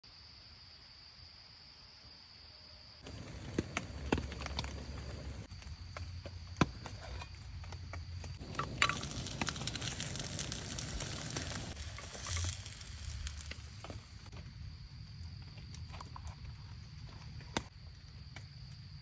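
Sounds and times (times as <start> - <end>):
food sizzling in a grill pan: 8.4 - 14.3.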